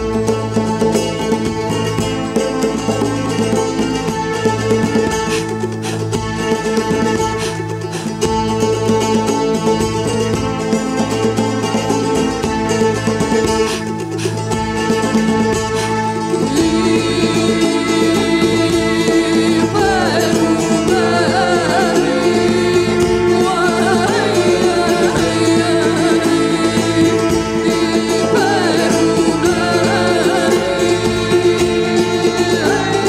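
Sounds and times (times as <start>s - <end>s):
keyboard: 0.0s - 33.0s
plucked lute drone: 0.0s - 33.0s
woman singing ornamented melody: 14.8s - 33.0s.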